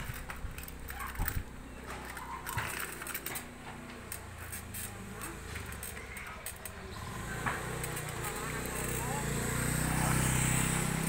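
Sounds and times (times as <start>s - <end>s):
light clicks and rattles: 0.0s - 9.2s
bicycle rolling over concrete: 0.0s - 11.0s.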